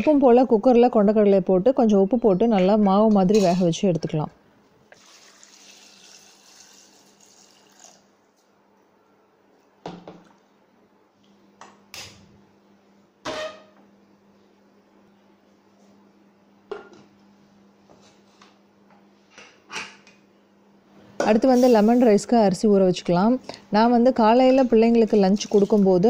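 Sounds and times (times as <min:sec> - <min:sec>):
water pouring into metal pot: 0:05.0 - 0:08.0.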